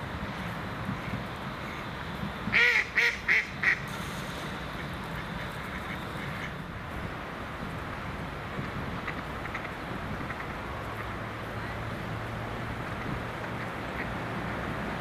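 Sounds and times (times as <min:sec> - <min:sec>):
duck quacking: 0:02.6 - 0:03.8.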